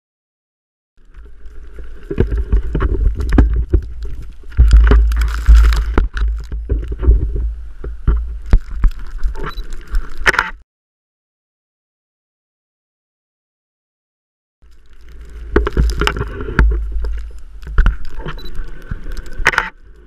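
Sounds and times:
crunches and knocks: 2.0s - 9.4s, 15.0s - 18.4s.

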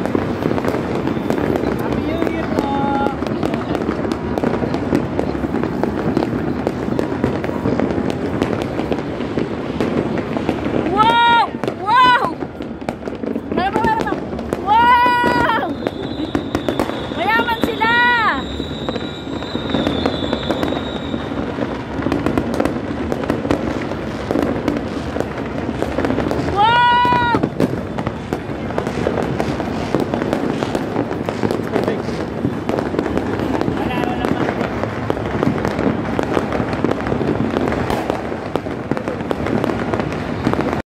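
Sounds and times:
fireworks popping and banging: 0.0s - 40.8s
firework whistle: 13.7s - 40.8s.

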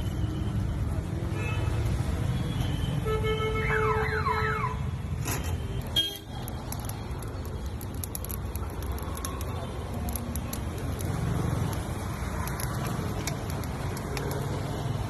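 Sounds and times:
charcoal crackling: 5.2s - 15.0s.

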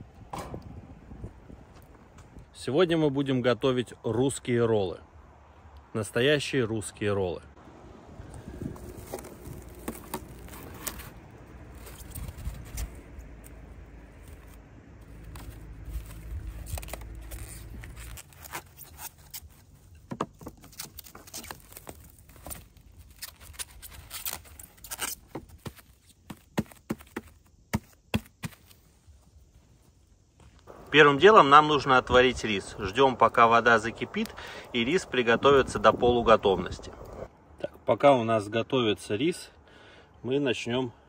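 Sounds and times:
cling film rustling and crackling: 8.6s - 29.6s.

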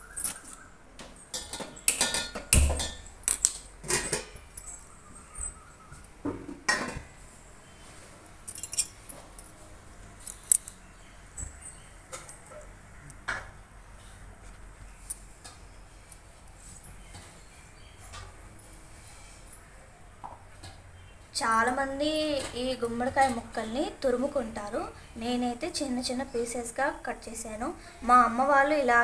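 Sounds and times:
metal cookware clanking: 1.3s - 3.1s, 3.8s - 4.8s.

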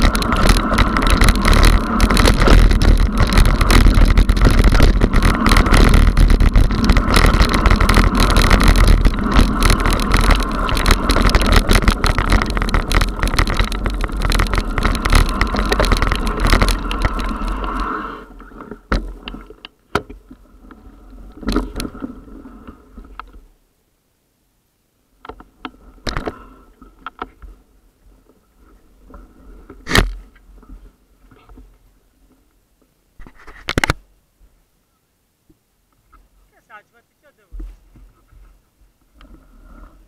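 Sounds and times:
bike rattling over gravel: 0.0s - 19.6s.

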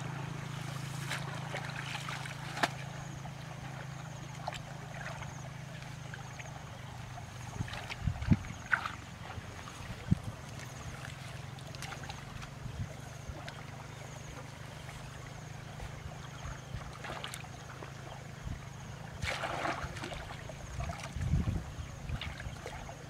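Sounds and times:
muddy water sloshing and trickling: 0.0s - 23.0s
steady low hum: 0.0s - 23.0s
water splash: 0.6s - 3.0s, 19.2s - 21.2s.

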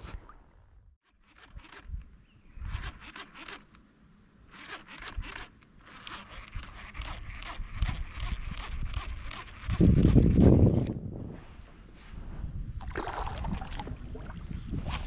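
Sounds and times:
fishing reel clicking: 1.2s - 3.8s, 4.5s - 10.2s.

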